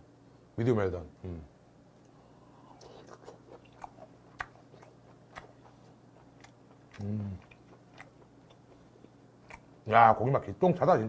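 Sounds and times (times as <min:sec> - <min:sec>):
person chewing food: 0:02.1 - 0:09.7
person humming: 0:07.0 - 0:07.5.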